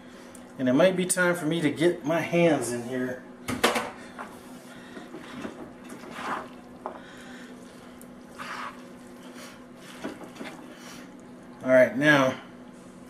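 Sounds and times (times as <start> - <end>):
low steady hum: 0.0 - 13.0
spoon squelching thick mixture: 5.2 - 11.5.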